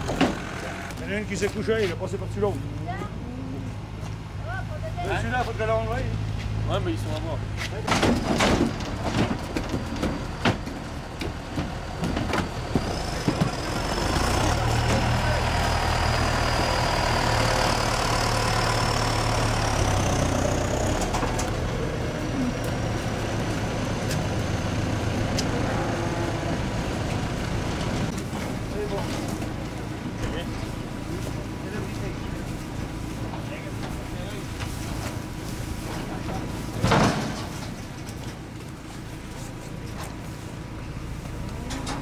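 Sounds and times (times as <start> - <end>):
diesel engine idling: 0.0 - 7.9, 8.6 - 42.0
cattle knocking in truck: 7.8 - 15.1.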